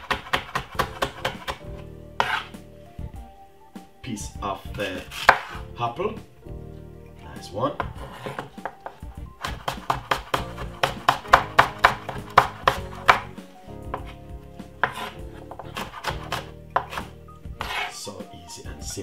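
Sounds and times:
knife chopping on wooden board: 0:00.0 - 0:02.5, 0:05.1 - 0:05.6, 0:07.8 - 0:14.2, 0:14.8 - 0:17.9.

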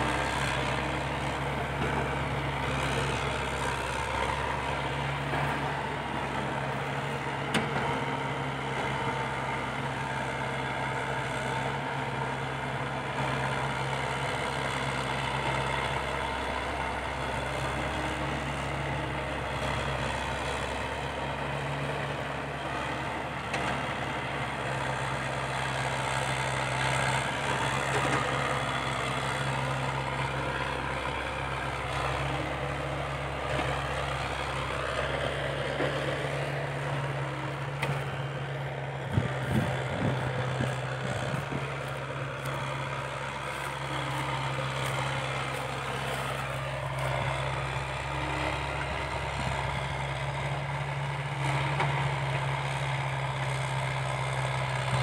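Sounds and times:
diesel engines droning: 0:00.0 - 0:55.0.

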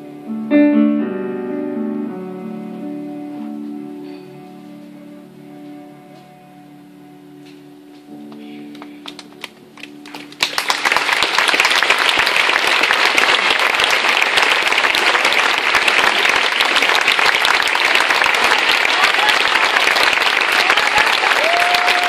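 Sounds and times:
piano notes: 0:00.0 - 0:10.4
audience applause: 0:08.8 - 0:22.0.

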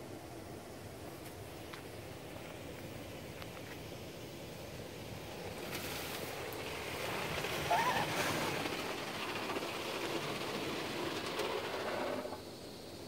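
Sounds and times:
car wash brushes swishing: 0:05.6 - 0:12.4.

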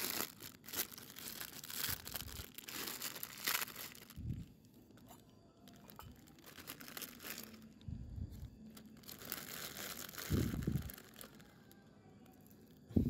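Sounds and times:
plastic packet crinkling: 0:00.0 - 0:12.8.

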